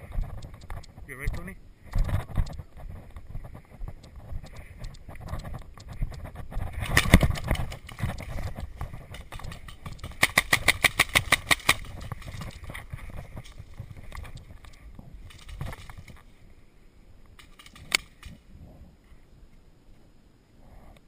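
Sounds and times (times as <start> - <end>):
paintball marker firing: 9.2 - 12.0.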